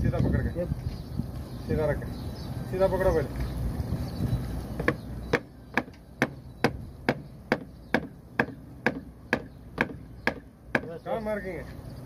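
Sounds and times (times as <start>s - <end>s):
hammer blows ringing: 4.8s - 11.0s.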